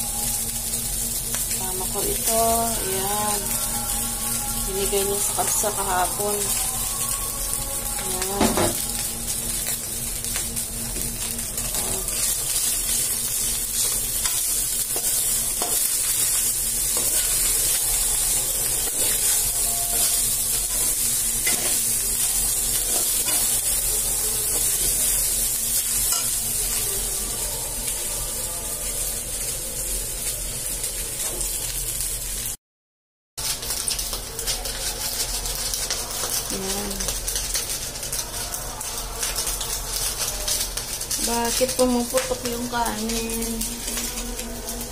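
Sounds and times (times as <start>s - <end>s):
rice sizzling in a wok: 0.0s - 32.6s, 33.4s - 44.9s
metal spoon scraping a wok: 16.9s - 17.8s, 18.8s - 21.9s.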